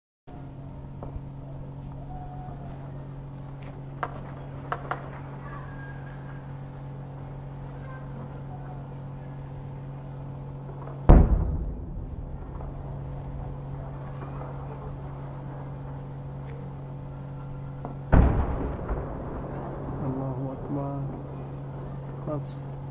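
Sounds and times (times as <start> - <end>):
steady low hum: 0.3 - 22.9
distant gunshot cracks: 11.0 - 15.0, 17.8 - 20.0
heavy explosion boom: 11.0 - 16.3, 17.8 - 22.2.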